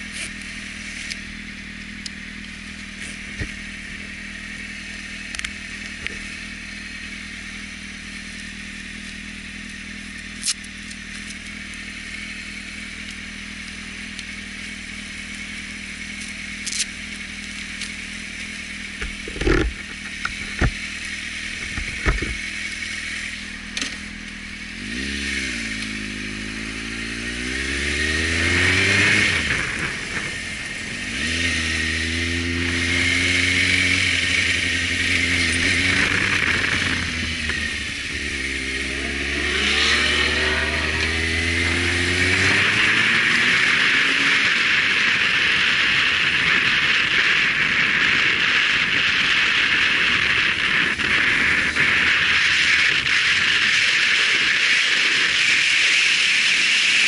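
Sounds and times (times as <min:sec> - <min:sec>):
motorcycle engine accelerating: 0:00.0 - 0:57.0
wind rush over microphone: 0:33.8 - 0:55.7.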